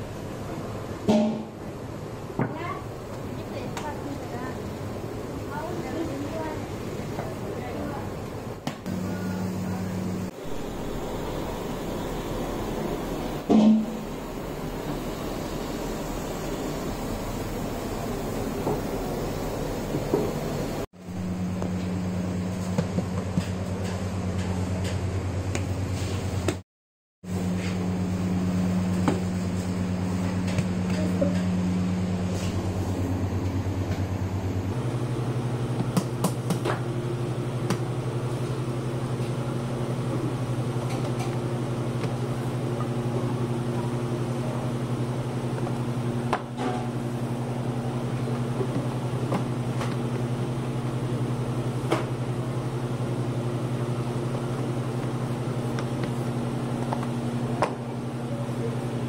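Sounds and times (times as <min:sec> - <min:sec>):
low machine hum: 0:00.0 - 0:26.6, 0:27.3 - 0:59.0.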